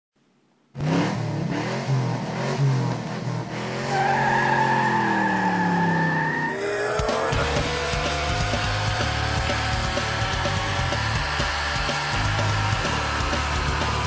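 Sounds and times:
car engine revving: 0:00.7 - 0:14.0
tyre squeal: 0:03.9 - 0:06.6.

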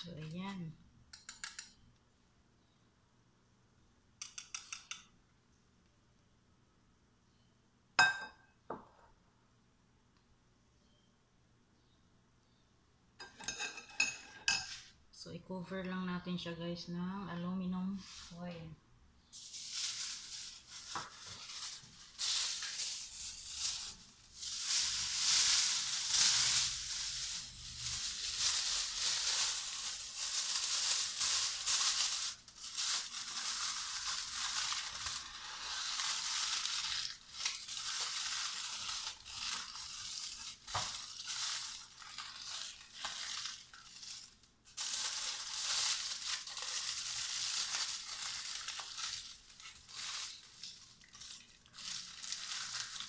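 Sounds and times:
aluminium foil crinkling: 0:00.0 - 0:01.7, 0:19.3 - 0:53.0.

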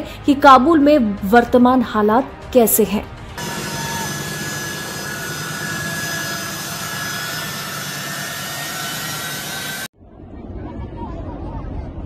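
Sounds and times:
high steady whine: 0:03.4 - 0:09.9
jet engines running: 0:03.4 - 0:09.9.

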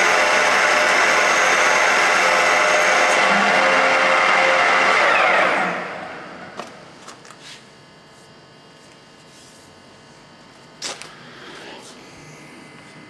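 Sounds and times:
lathe gear whine winding down: 0:00.0 - 0:06.6, 0:11.0 - 0:13.0.

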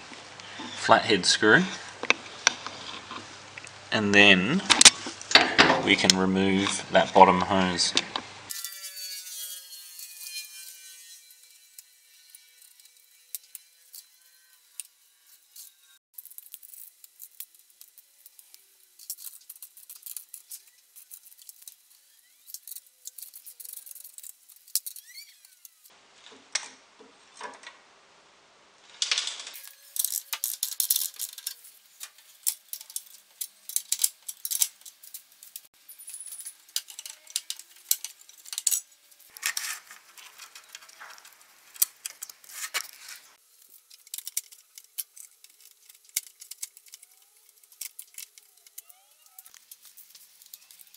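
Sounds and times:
metallic clicks and rattles of tools: 0:29.6 - 0:43.0, 0:43.7 - 0:50.9.

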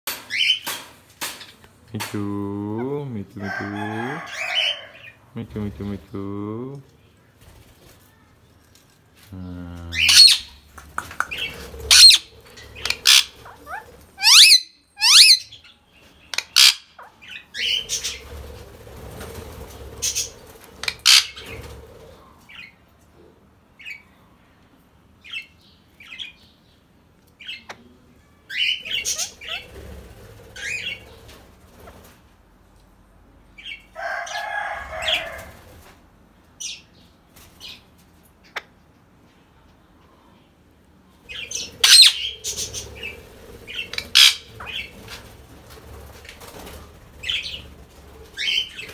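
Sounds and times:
parakeets screeching: 0:09.9 - 0:10.6, 0:11.3 - 0:15.6, 0:16.4 - 0:18.4, 0:19.2 - 0:21.8, 0:28.6 - 0:29.9, 0:41.3 - 0:45.1, 0:48.4 - 0:48.9.

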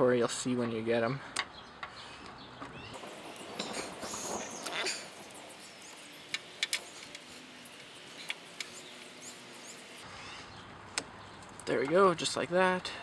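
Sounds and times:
low hiss: 0:03.0 - 0:10.0.

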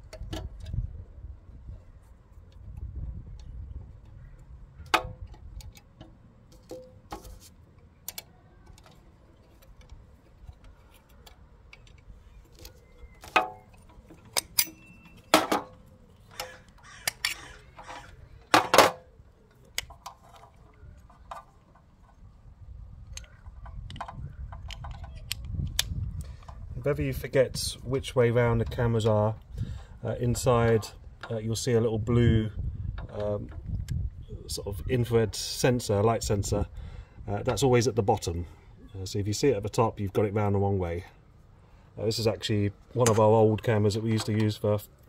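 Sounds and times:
plastic camera parts clicking: 0:16.3 - 0:18.6, 0:23.1 - 0:26.6.

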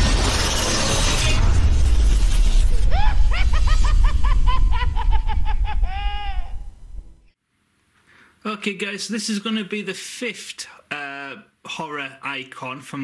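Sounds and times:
deep rumbling crash: 0:00.0 - 0:07.3
cackling laugh: 0:02.9 - 0:06.7.

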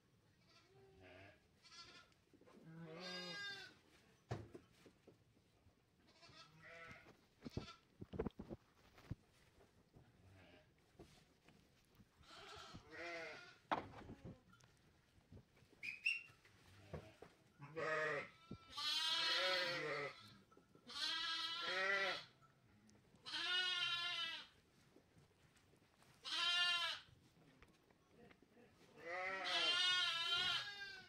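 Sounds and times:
sheep bleating: 0:00.5 - 0:03.8, 0:06.1 - 0:07.8, 0:12.2 - 0:13.6, 0:17.6 - 0:22.3, 0:23.2 - 0:24.5, 0:26.2 - 0:27.1, 0:29.0 - 0:31.0.

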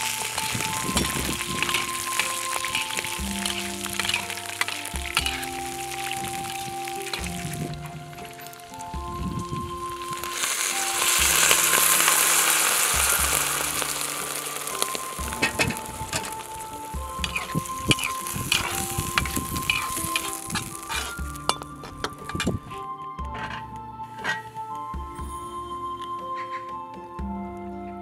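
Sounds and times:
spatula scraping wok: 0:00.0 - 0:08.6, 0:10.1 - 0:22.6
meat sizzling in wok: 0:00.0 - 0:22.6.

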